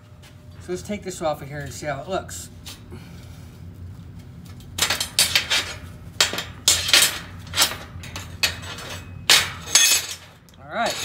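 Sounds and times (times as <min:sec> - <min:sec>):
metal clanks and clinks: 0:04.8 - 0:11.0.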